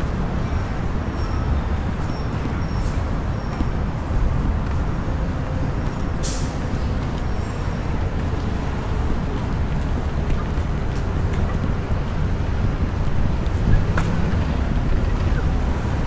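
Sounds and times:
bus engine rumble: 0.0 - 16.0
air brakes hissing: 6.2 - 6.9.

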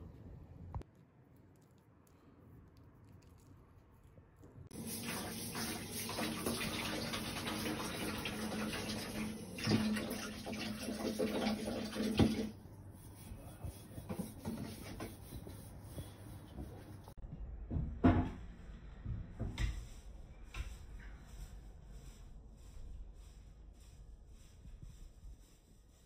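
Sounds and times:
water running: 4.7 - 12.6.

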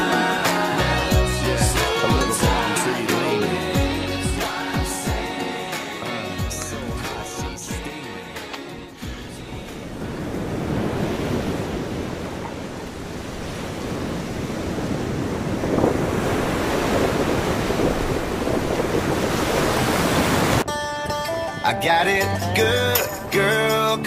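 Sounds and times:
music: 0.0 - 10.6, 20.6 - 24.0
ocean surf breaking: 1.8 - 3.8, 4.4 - 20.7
wind buffeting microphone: 9.2 - 21.3.

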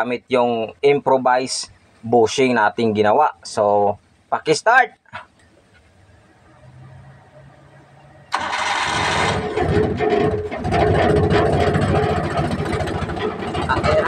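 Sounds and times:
petrol engine running fast: 8.3 - 14.0
starter motor cranking: 8.3 - 14.0.

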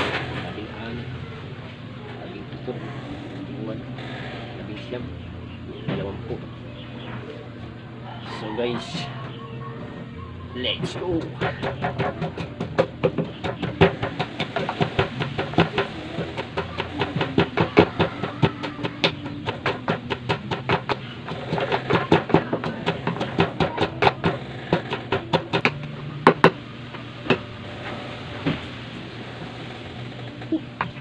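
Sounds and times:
wooden pestle pounding in mortar: 10.7 - 26.6.

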